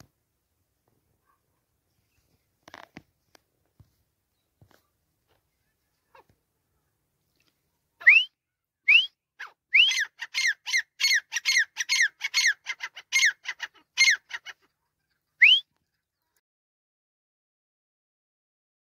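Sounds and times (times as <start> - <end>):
francolin calling: 9.7 - 14.6, 15.3 - 15.7.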